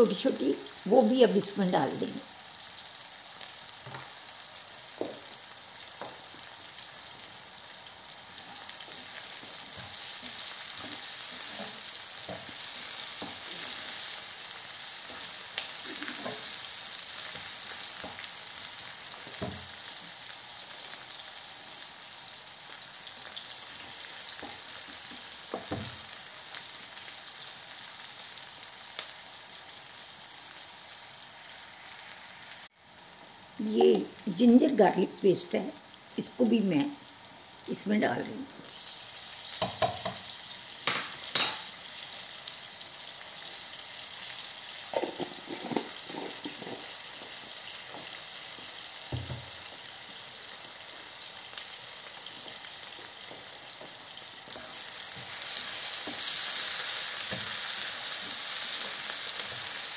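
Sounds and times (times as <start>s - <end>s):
onions sizzling in hot oil: 0.0s - 59.9s
spatula knocking pan: 39.6s - 40.2s.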